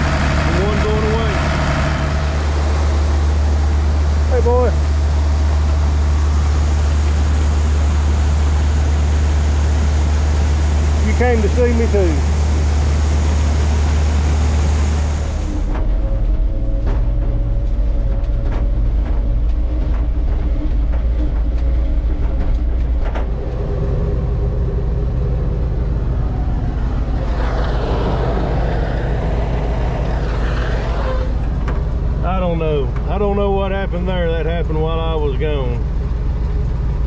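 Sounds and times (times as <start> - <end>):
loud rushing noise: 0.0 - 17.6, 21.6 - 32.7
farm vehicle engine humming: 0.0 - 37.0.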